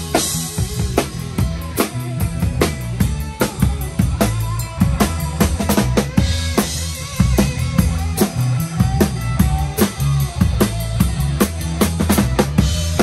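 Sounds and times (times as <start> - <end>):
live band playing: 0.0 - 13.0.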